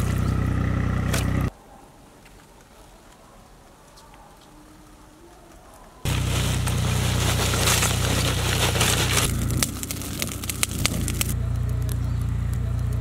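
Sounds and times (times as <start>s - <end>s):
charcoal clinks and shovel raking: 6.1s - 11.4s
charcoal pouring onto fire: 6.1s - 11.4s.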